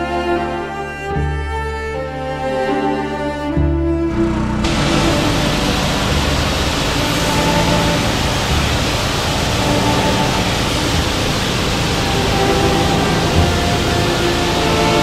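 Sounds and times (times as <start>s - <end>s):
faint hum: 4.0s - 15.0s
pressure washer spray hiss: 4.6s - 15.0s.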